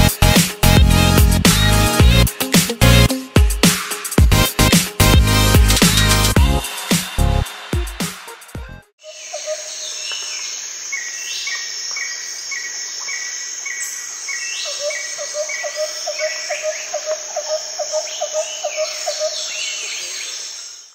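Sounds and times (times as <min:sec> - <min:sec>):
bird lower chirping: 0:09.0 - 0:20.7
insect chirring: 0:09.0 - 0:20.9.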